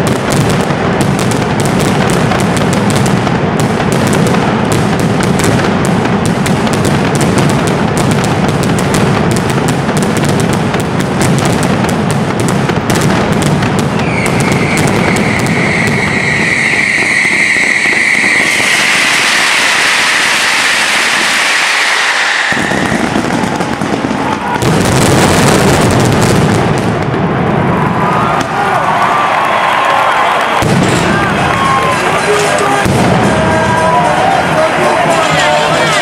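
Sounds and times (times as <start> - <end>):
firecrackers banging: 0.0 - 36.0
high whistling tone: 14.0 - 23.2.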